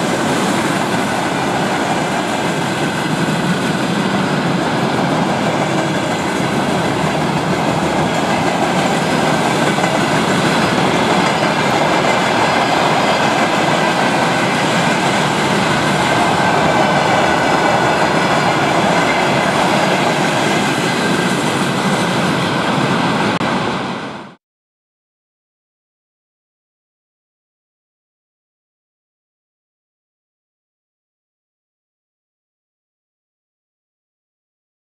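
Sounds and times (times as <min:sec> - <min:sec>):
train wheels rumbling and rattling: 0:00.0 - 0:24.4.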